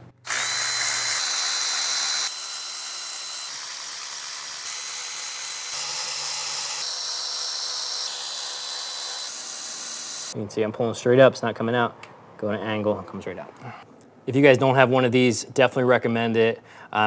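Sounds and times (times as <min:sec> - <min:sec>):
cordless ratchet motor whirring: 0:00.3 - 0:10.4.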